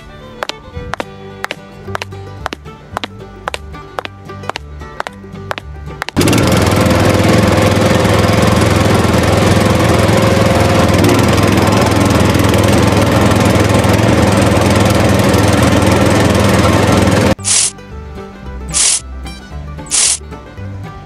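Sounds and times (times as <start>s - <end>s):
music: 0.0s - 7.6s, 16.3s - 21.0s
tractor engine running: 0.0s - 17.7s, 18.6s - 19.0s, 19.8s - 20.2s.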